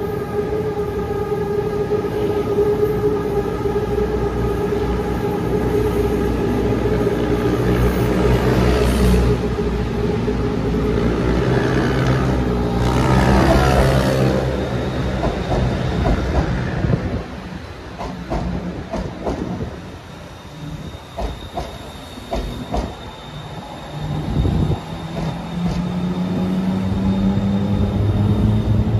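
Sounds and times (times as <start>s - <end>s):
electric train motors whining: 0.0s - 28.9s
train wheels clicking over rail joints: 15.0s - 17.0s, 18.0s - 19.8s, 21.1s - 23.1s, 25.0s - 26.1s.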